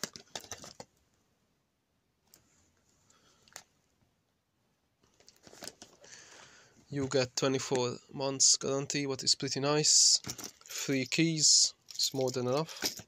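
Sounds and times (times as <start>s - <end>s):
soft rustle: 2.2s - 4.0s.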